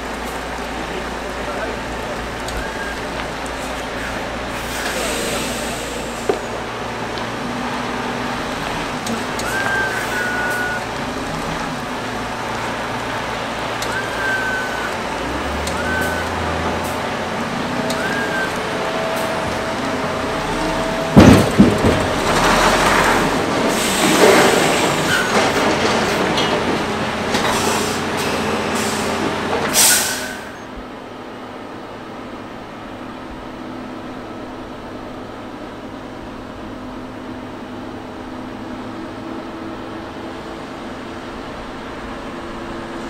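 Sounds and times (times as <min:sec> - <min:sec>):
diesel engine running: 0:00.0 - 0:43.0
heavy steel clanking: 0:18.9 - 0:28.4.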